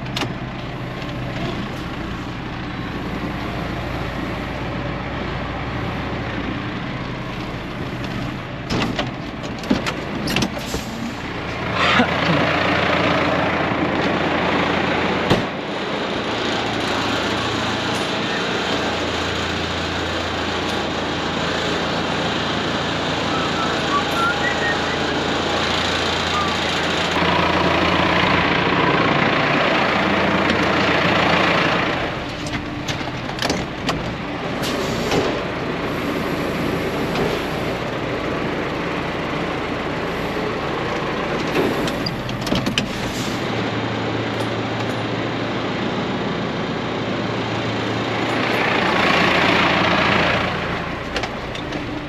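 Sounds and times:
tractor diesel engine running: 0.0s - 52.0s.

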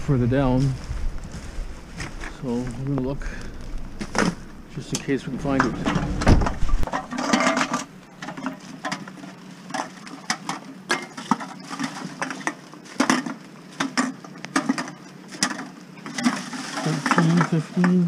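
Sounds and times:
bottles and cans clinking: 6.9s - 9.0s.

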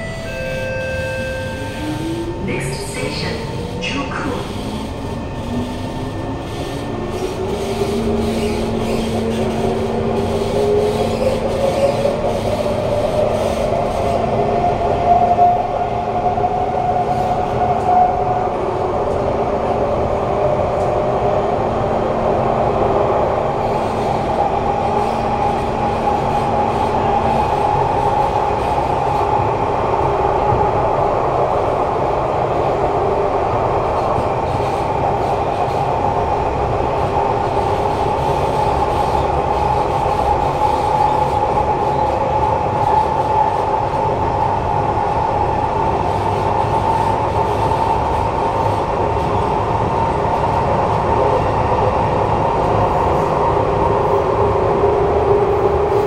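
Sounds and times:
train traction motors whining: 0.0s - 14.4s
rail noise: 0.0s - 56.0s.

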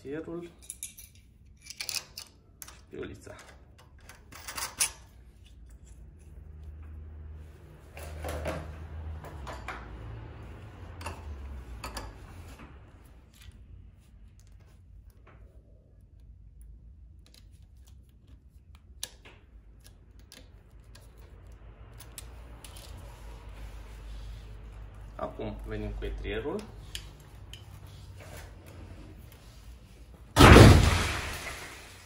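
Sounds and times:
small steel parts clinking: 0.6s - 5.2s.

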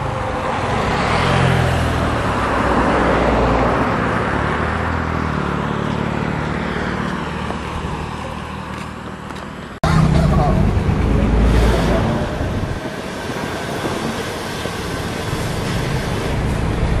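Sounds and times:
vehicle passing on highway: 0.0s - 17.0s.

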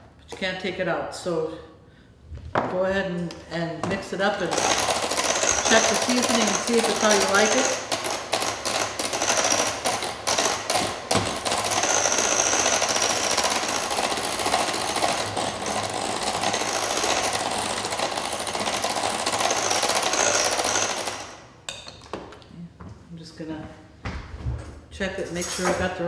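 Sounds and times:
electric hand mixer running: 4.4s - 21.5s.

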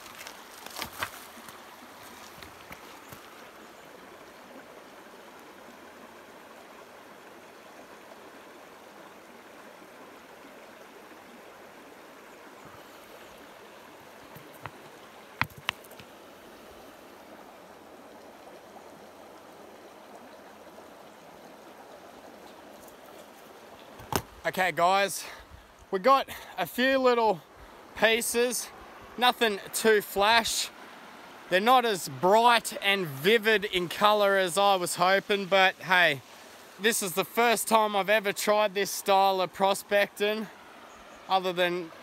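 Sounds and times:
creek water running: 0.0s - 42.0s.

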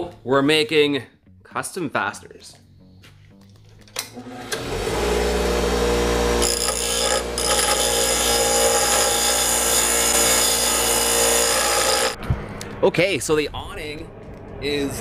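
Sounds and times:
angle grinder whine: 4.2s - 12.2s
grinder cutting metal: 4.2s - 12.2s.

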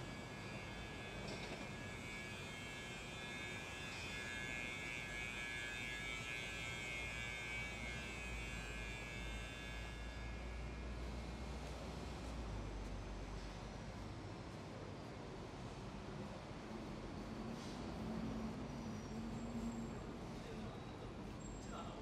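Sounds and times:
electrical hum with high whine: 0.0s - 17.4s.

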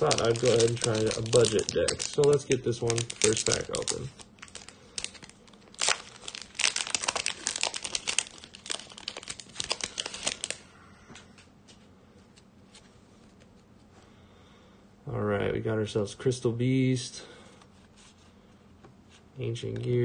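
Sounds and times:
foil wrapper crinkling and tearing: 0.0s - 10.7s.

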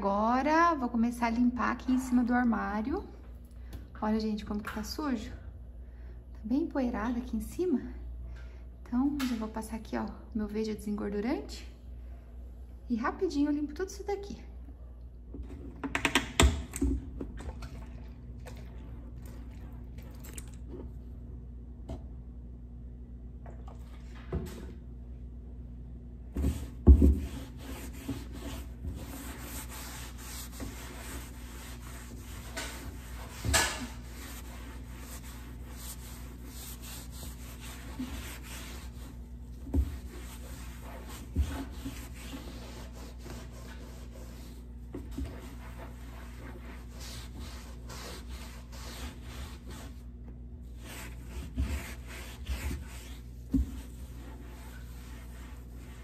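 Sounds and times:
cloth scrubbing wood: 26.4s - 56.0s.

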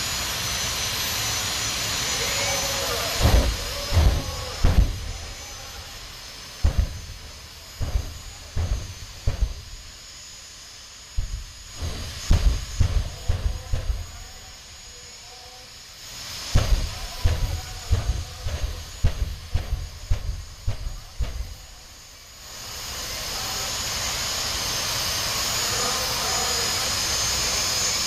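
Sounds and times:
turbine engine whine: 0.0s - 28.0s
low thumps: 3.2s - 5.4s, 6.6s - 10.0s, 11.2s - 14.5s, 16.6s - 21.9s.

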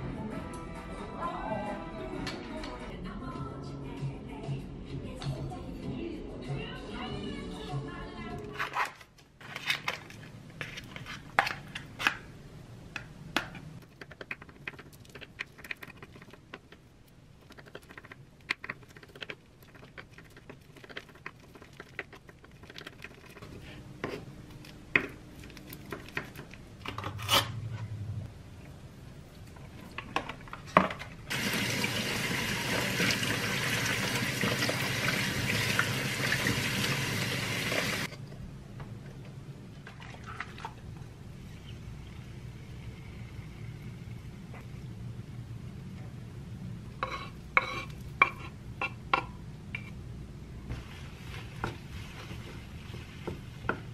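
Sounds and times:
faucet running into sink: 31.3s - 38.1s.

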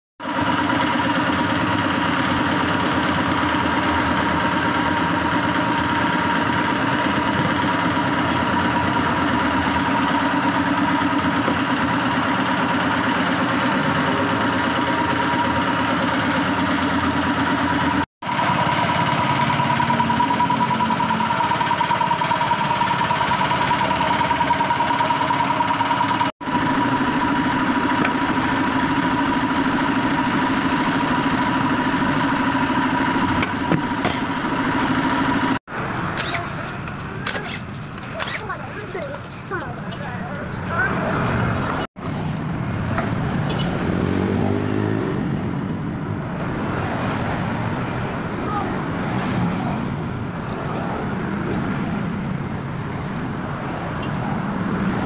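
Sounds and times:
machine motor humming and rattling: 0.2s - 38.1s.

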